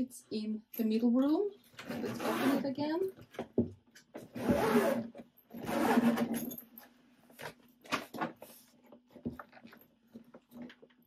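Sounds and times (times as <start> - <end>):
suitcase zipper pulled open: 1.8 - 2.6, 4.3 - 6.5.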